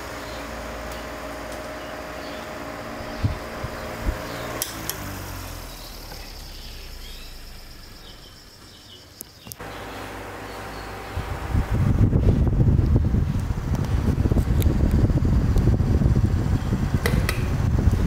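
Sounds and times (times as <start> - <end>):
electric fan hum and air: 0.0 - 18.0
fan switch clicks: 4.1 - 5.2, 17.0 - 18.0.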